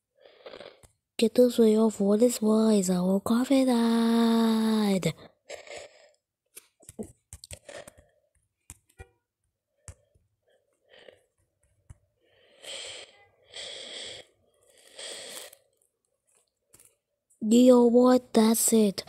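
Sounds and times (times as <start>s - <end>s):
faint clicks and taps: 6.5s - 12.1s, 15.8s - 17.4s
breathy noise bursts: 12.4s - 15.7s.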